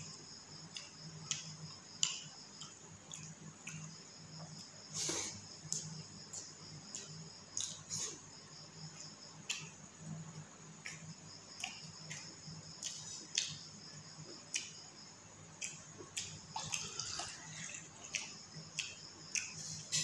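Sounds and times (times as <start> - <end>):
chewing: 0.6 - 8.2, 10.8 - 13.6, 14.2 - 14.8, 15.6 - 20.0
fingers squelching food: 15.6 - 19.6.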